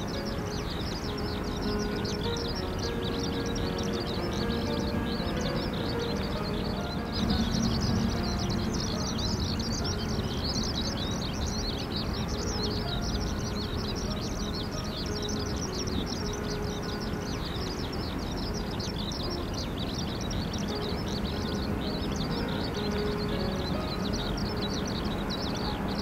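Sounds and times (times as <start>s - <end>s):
steady low rumble: 0.0s - 17.3s
small birds chirping: 0.0s - 26.0s.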